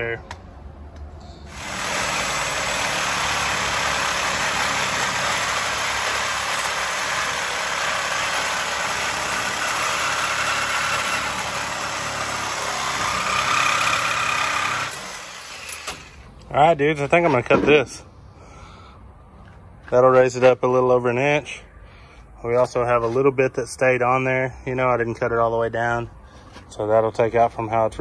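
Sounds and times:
angle grinder cutting steel: 1.5 - 16.2.

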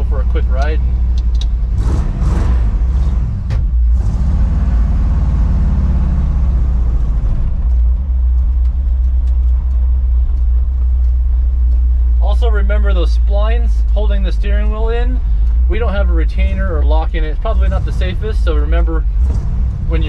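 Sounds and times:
truck engine rumbling: 0.0 - 20.0
gear shifter clicks and clunks: 0.5 - 1.7, 7.5 - 12.0.

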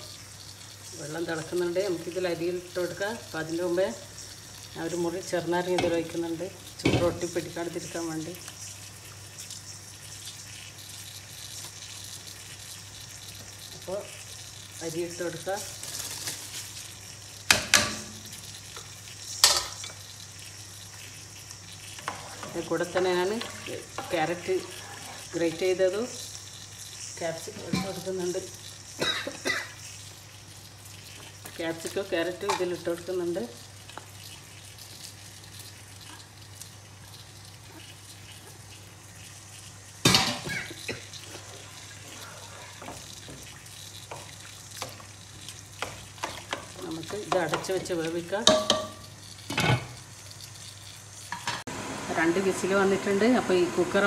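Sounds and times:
boiling water hiss: 0.0 - 54.0
spatula stirring against pot: 17.5 - 29.0, 29.8 - 51.6.

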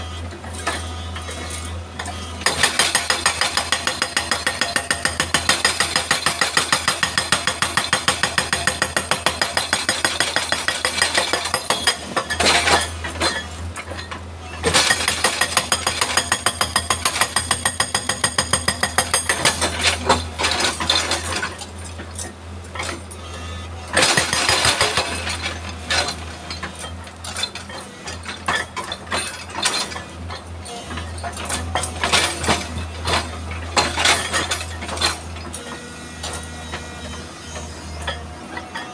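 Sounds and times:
hydraulic rock breaker hammering: 0.3 - 38.9.

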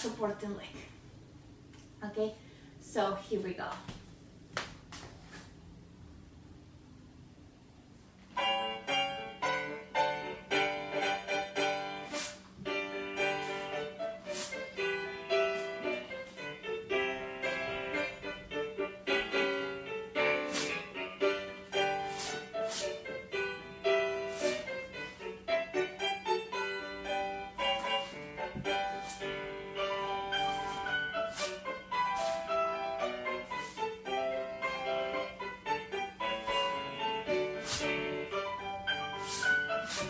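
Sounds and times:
brisk rhythmic piano tune: 8.3 - 40.0.

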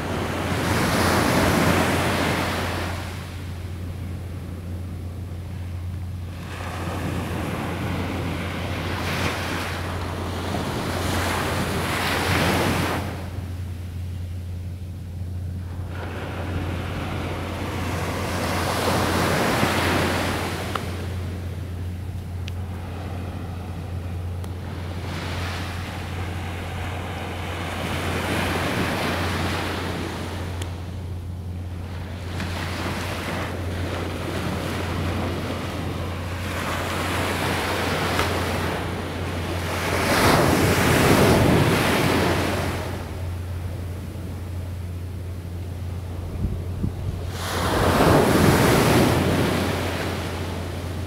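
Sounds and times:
steady low hum: 0.0 - 51.0
surf breaking on beach: 15.6 - 21.5, 32.0 - 43.2, 46.3 - 51.0
wind on microphone: 46.0 - 51.0.

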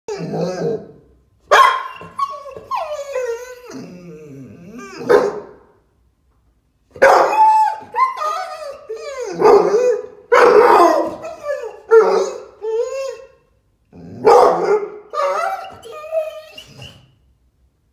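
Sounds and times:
dog howling and whining: 0.1 - 1.0, 1.8 - 5.4, 7.0 - 13.4, 14.0 - 17.2
dog barking: 1.5 - 2.2, 5.0 - 5.7, 7.0 - 7.7, 9.4 - 11.3, 11.9 - 12.5, 14.2 - 15.8.

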